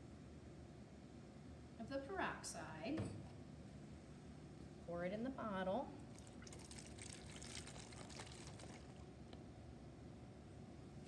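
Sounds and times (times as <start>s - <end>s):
liquid trickling through metal funnel: 6.1s - 9.1s.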